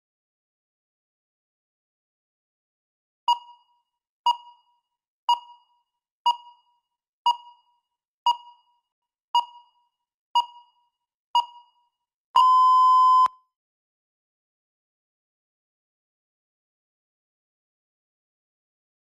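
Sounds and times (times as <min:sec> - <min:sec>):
timer long steady beep: 0:03.3 - 0:08.8, 0:09.4 - 0:13.4.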